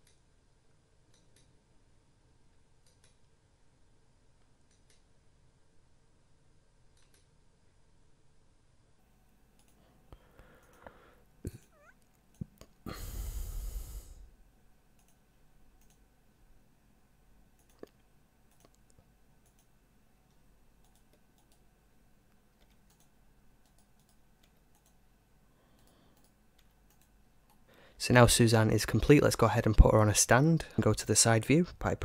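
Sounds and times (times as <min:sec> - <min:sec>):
computer mouse clicks and key presses: 0:00.0 - 0:00.3, 0:01.0 - 0:01.6, 0:02.7 - 0:03.4, 0:04.4 - 0:05.2, 0:06.9 - 0:07.4, 0:09.5 - 0:12.8, 0:14.9 - 0:16.1, 0:17.5 - 0:27.7
low hiss: 0:00.0 - 0:32.0.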